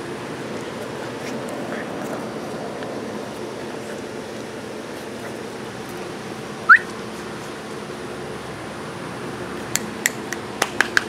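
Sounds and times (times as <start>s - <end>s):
low background hum: 0.0s - 11.0s
puppy yelping: 6.7s - 7.0s.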